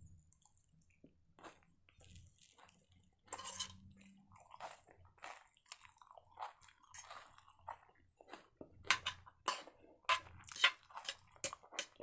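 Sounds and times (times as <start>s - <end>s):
person chewing food: 0.1s - 12.0s.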